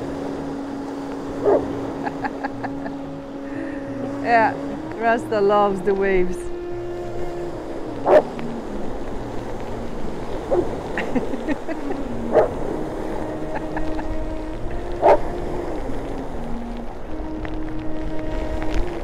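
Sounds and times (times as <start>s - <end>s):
surf washing: 0.0s - 19.0s
wind: 0.0s - 19.0s.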